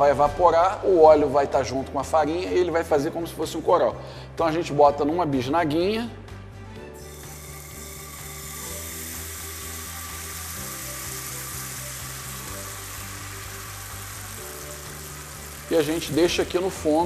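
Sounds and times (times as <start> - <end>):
batter sizzling in frying pan: 7.0 - 17.0.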